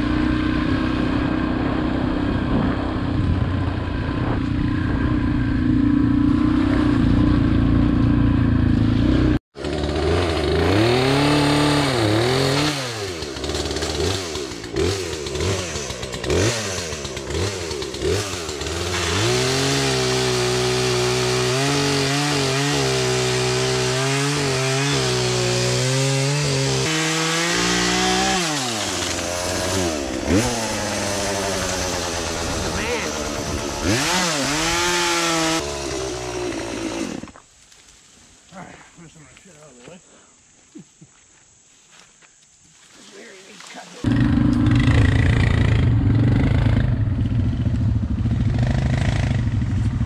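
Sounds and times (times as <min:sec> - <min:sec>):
dirt bike engine running: 0:00.0 - 0:36.7, 0:44.0 - 0:50.0
chainsaw revving and cutting: 0:04.5 - 0:37.4, 0:43.6 - 0:47.3, 0:48.1 - 0:50.0.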